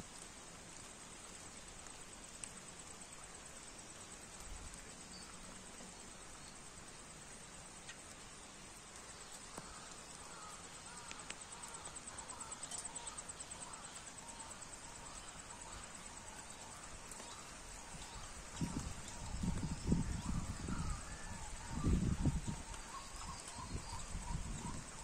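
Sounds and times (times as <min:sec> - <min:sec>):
light rain on a pond: 0:00.0 - 0:25.0
insect pulsing trill: 0:09.0 - 0:25.0.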